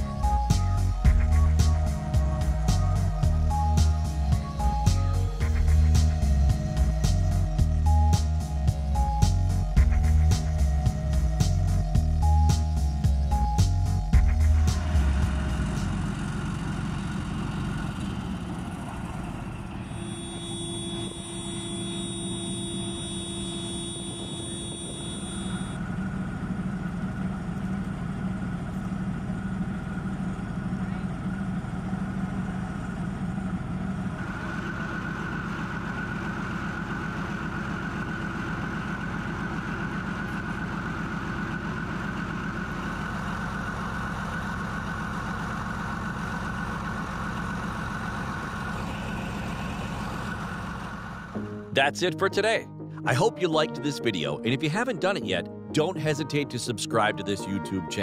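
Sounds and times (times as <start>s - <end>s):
high whine: 0.0s - 16.5s, 19.4s - 25.9s
diesel engine idling: 0.0s - 57.9s.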